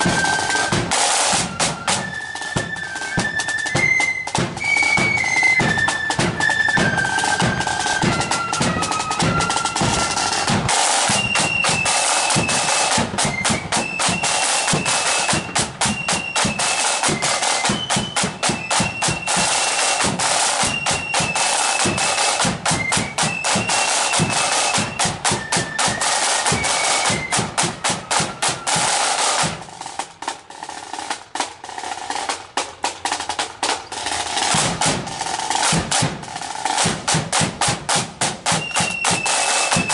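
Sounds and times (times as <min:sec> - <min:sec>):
flutes playing a tune: 0:00.0 - 0:30.0, 0:38.4 - 0:39.9
rapid snare drumming: 0:00.0 - 0:39.9.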